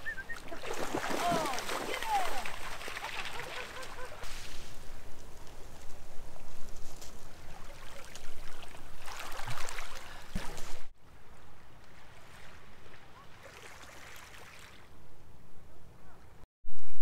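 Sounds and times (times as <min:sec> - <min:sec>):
water crackling among stones: 0:00.0 - 0:10.9
waves lapping on pebble shore: 0:00.4 - 0:04.9.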